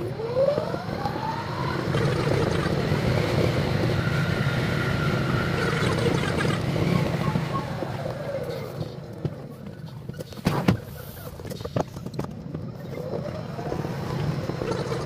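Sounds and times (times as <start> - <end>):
motor whine rising: 0.0 - 9.2
electric train running: 0.0 - 10.2.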